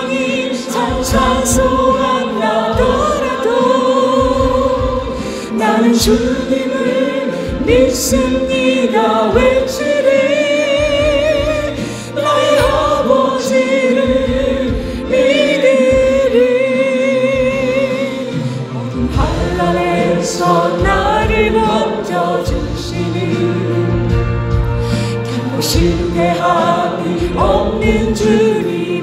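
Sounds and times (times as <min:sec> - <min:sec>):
instrumental accompaniment: 0:00.0 - 0:29.0
voices singing with vibrato: 0:00.0 - 0:29.0.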